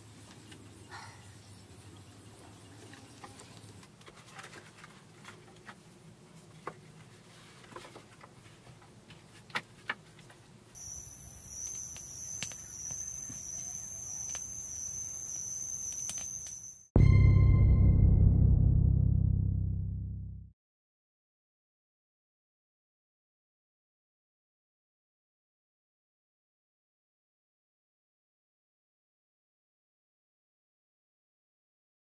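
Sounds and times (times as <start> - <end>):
high-pitched insect drone: 10.8 - 16.9.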